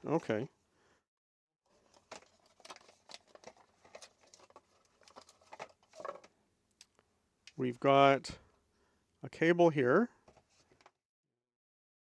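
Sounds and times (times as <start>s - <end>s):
cardboard packaging rustling: 1.7s - 6.3s.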